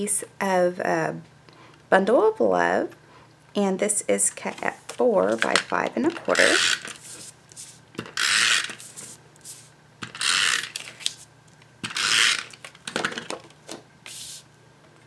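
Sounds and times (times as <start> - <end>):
tape runner rasping zip: 6.3 - 7.2, 8.0 - 9.1, 10.0 - 11.1, 11.8 - 12.7.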